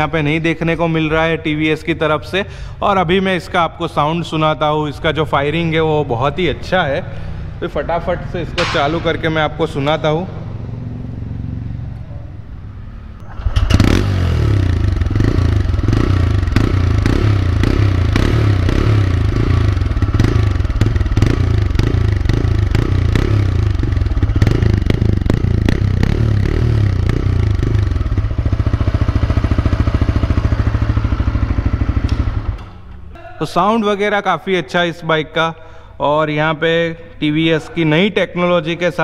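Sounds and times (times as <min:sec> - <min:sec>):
motorcycle engine idling: 0:07.1 - 0:33.1
electric starter: 0:13.2 - 0:15.4.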